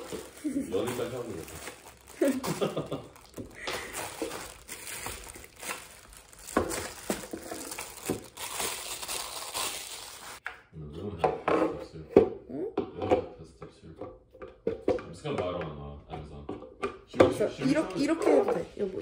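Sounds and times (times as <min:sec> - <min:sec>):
plastic packaging crinkling: 0:00.0 - 0:10.4.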